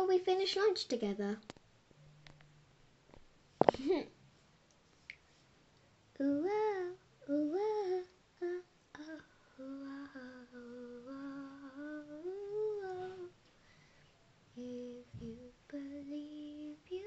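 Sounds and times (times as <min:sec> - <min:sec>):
person humming a tune: 0:06.2 - 0:13.3, 0:14.6 - 0:17.0.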